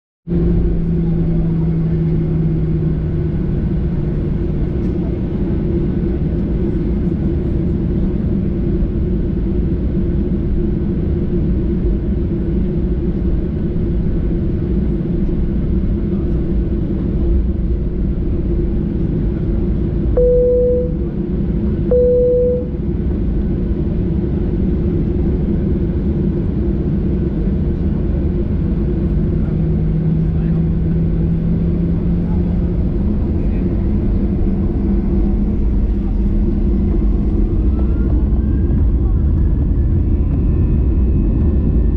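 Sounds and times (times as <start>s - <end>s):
airplane cabin rumble and hum: 0.3s - 41.9s
short cabin tones: 20.2s - 21.1s, 21.9s - 22.8s.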